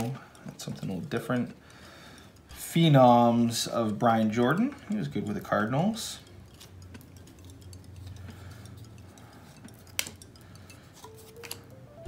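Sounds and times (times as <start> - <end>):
cards sliding and tapping on table: 11.0 - 11.7.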